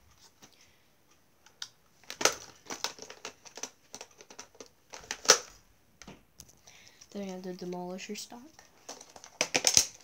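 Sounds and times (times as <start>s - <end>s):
hard plastic clicks and rattles: 1.4s - 6.6s.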